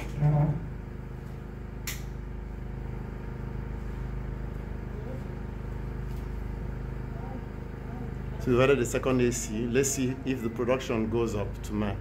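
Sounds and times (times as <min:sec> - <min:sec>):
air conditioning humming: 0:00.0 - 0:12.0
sharp click: 0:01.8 - 0:02.2.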